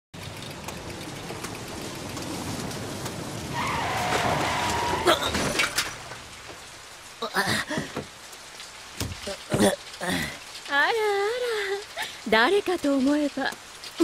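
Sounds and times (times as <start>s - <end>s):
car approaching: 0.2s - 5.1s
heavy rain: 0.2s - 14.0s
brake screech: 3.5s - 5.9s
bicycle crashing to the ground: 4.0s - 6.2s.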